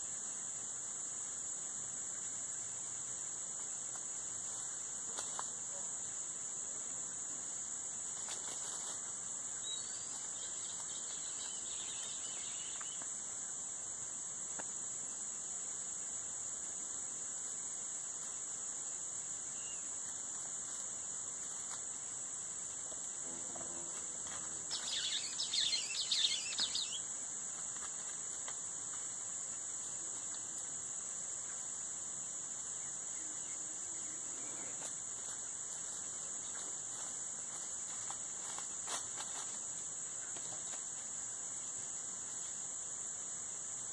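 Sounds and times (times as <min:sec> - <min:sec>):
insect chorus droning: 0:00.0 - 0:43.9
burst of high chirping: 0:24.7 - 0:27.0.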